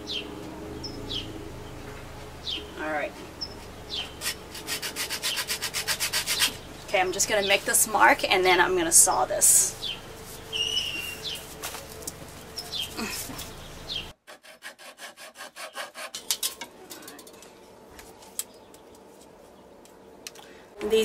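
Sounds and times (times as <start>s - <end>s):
hacksaw rasping strokes: 4.2s - 6.6s, 14.3s - 16.6s.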